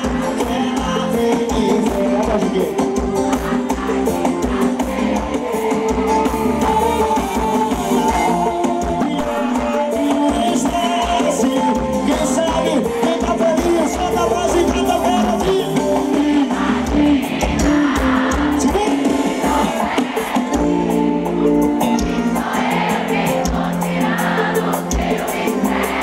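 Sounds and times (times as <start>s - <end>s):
man singing: 0.0s - 3.0s, 6.6s - 16.6s, 17.6s - 19.9s
live band music: 0.0s - 26.0s.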